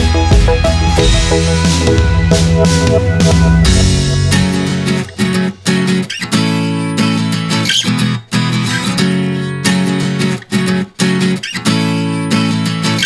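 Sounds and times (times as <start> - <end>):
strummed guitar chords: 0.0 - 7.6.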